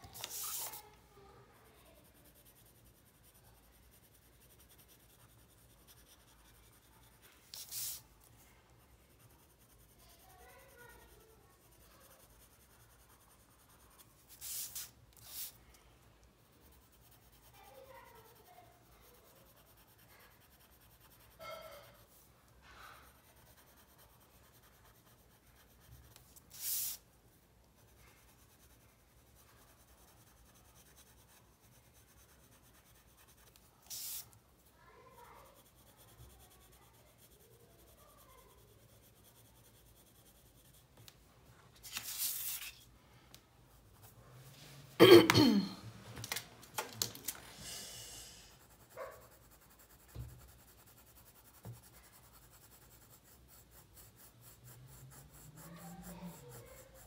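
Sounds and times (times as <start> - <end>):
pencil scratching on paper: 0.0 - 42.9, 43.7 - 44.6, 47.4 - 57.0
paper sheet sliding: 41.8 - 42.8.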